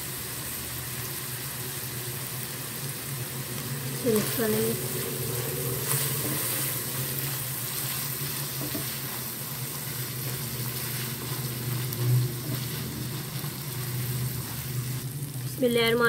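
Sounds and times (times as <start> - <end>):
meat sizzling in oil: 0.0 - 16.0
spatula stirring and scraping: 4.0 - 15.1.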